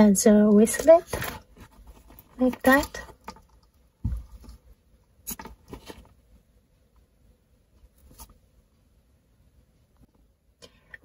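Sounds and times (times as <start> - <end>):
soft bump: 4.0 - 4.5.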